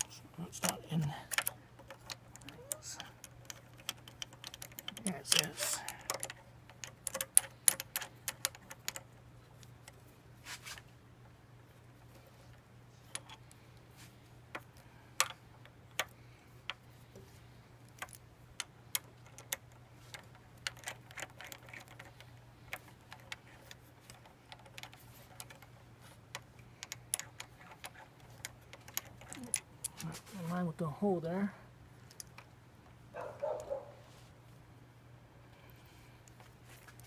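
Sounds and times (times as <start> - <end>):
metal parts clicking and tapping: 0.0 - 10.1, 11.9 - 13.6, 14.5 - 30.2, 32.0 - 32.5.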